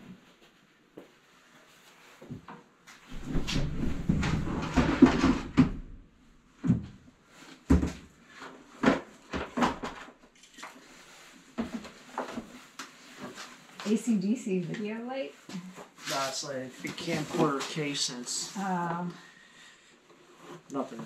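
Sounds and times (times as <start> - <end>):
knocks and bumps: 3.1 - 6.0
rustling and scraping: 7.3 - 18.7.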